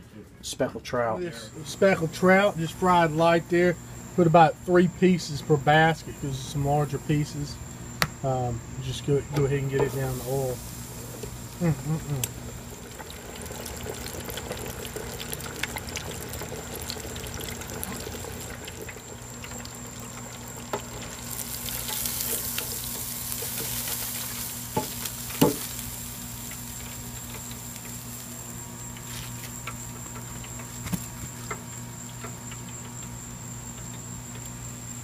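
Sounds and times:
fish fillets sizzling in deep fryer: 1.5s - 35.0s
fryer basket knocks: 24.7s - 25.8s.

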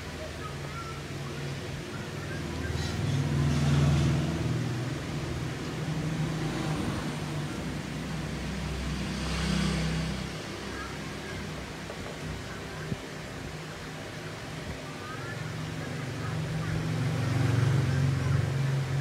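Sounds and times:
road traffic hum: 0.0s - 19.0s.

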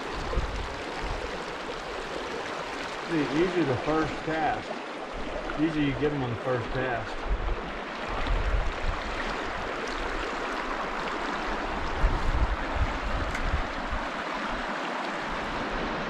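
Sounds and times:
wind buffeting microphone: 0.0s - 1.4s, 7.1s - 10.2s, 11.5s - 14.7s
river water rushing: 0.0s - 16.0s.

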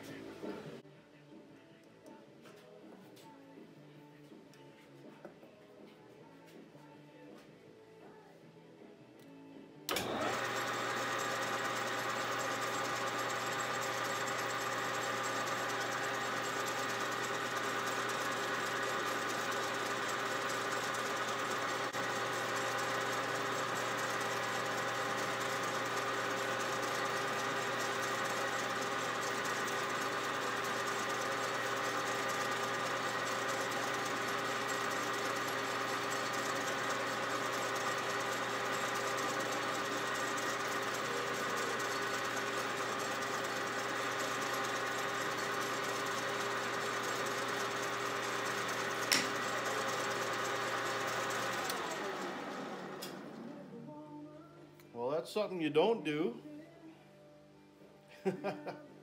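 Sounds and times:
metal lathe humming: 9.9s - 53.8s.

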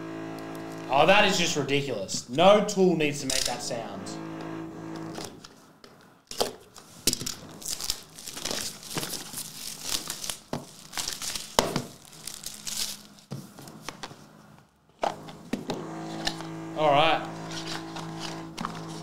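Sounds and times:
plastic wrap tearing and crinkling: 7.1s - 13.3s.

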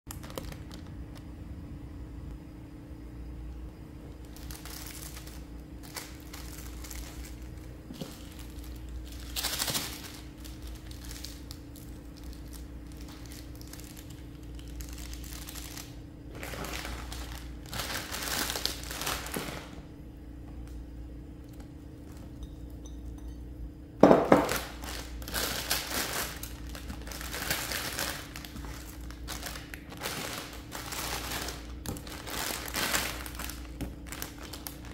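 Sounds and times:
plastic wrapping crinkling: 0.1s - 1.2s, 4.1s - 19.9s, 24.0s - 34.9s
steady low hum: 0.1s - 34.9s.

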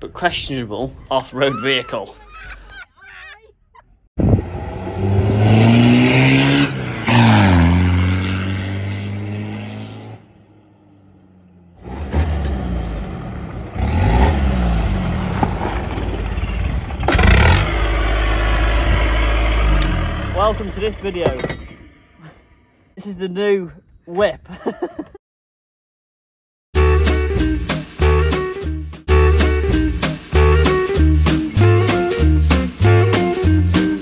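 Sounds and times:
engine revving and accelerating: 4.2s - 10.3s, 11.4s - 15.9s, 17.0s - 20.8s.

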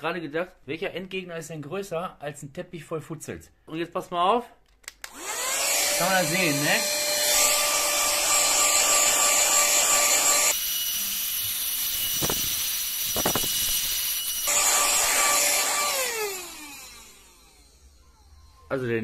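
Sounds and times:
vacuum cleaner whining: 5.1s - 19.0s.

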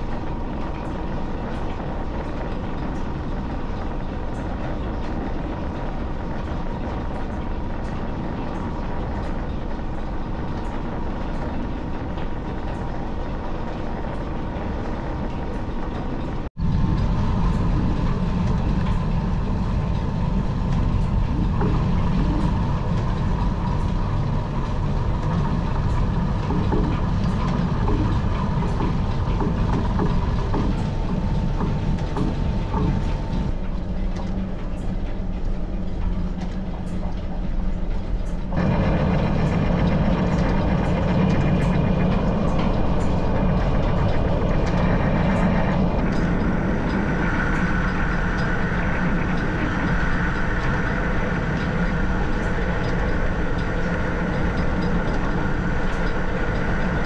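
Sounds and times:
lineshaft and lathe running: 16.6s - 57.0s.

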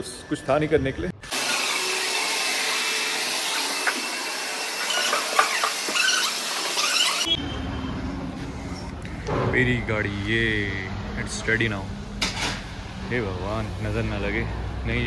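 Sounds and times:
vacuum cleaner running: 1.3s - 7.2s.

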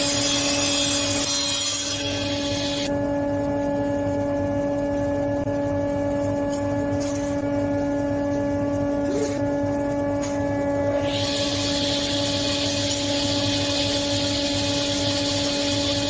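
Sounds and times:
table saw humming: 0.0s - 2.9s, 10.5s - 16.0s.

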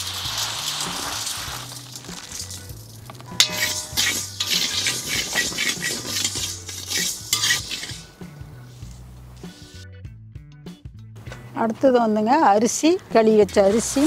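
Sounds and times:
grains pouring into iron pan: 0.0s - 8.1s
steel ladle scraping iron pan: 0.0s - 9.8s.

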